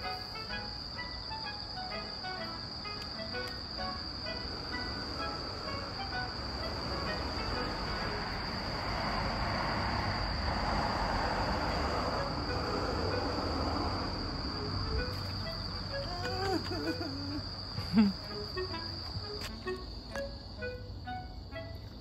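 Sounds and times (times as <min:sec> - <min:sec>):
insects trilling: 0:00.0 - 0:22.0.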